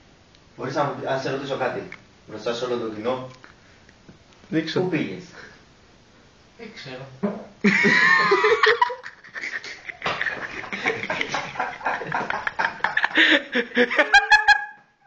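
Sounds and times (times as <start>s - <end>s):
people laughing loudly: 7.7s - 14.8s.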